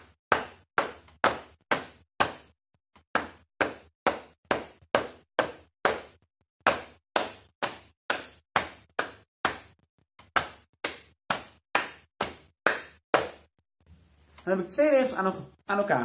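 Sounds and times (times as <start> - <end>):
hands slapping thighs: 3.2 - 13.5
hands clapping: 6.8 - 13.4.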